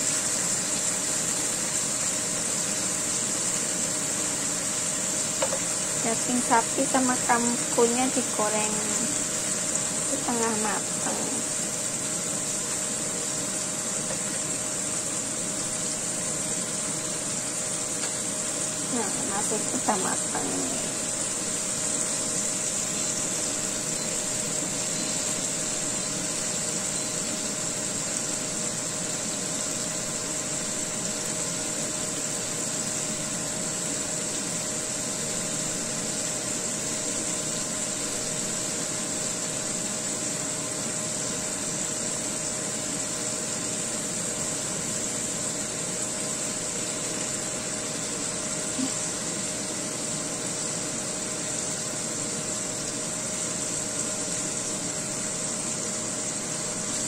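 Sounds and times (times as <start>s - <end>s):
food sizzling in a pan: 0.0s - 57.0s
low mechanical hum: 0.0s - 57.0s.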